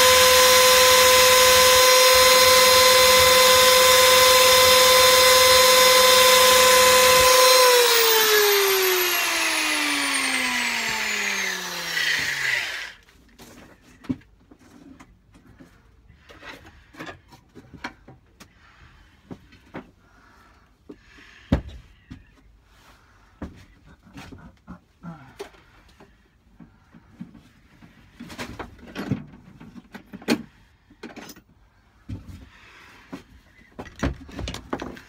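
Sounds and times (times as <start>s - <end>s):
power drill whining and winding down: 0.0s - 13.0s.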